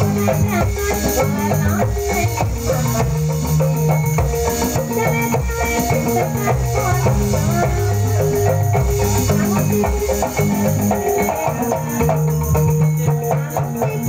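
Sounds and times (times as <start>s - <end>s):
sustained bass notes: 0.0s - 13.8s
bamboo xylophones playing melody: 0.0s - 14.0s
drums: 0.0s - 14.0s.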